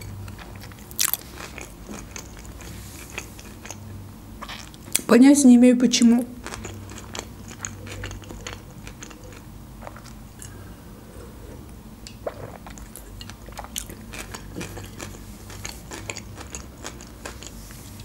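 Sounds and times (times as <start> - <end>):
low steady hum: 0.0 - 18.0
sipping and swallowing: 11.2 - 14.0.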